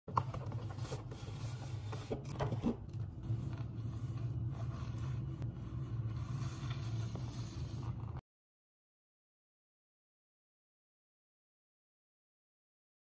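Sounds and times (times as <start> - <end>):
steady low hum: 0.2 - 8.2.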